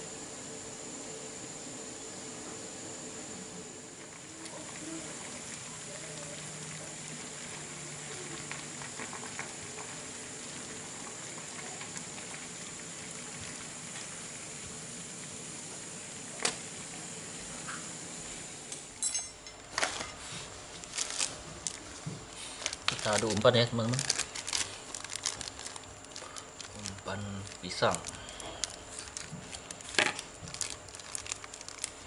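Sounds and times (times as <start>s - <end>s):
water boiling in a saucepan: 0.0s - 32.0s
plastic bag crinkling: 19.7s - 32.0s.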